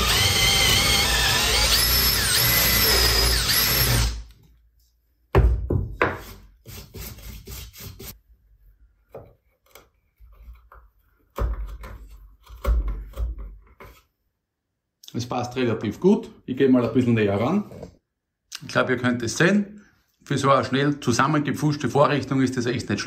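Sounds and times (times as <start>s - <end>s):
cordless drill whining: 0.0s - 4.3s.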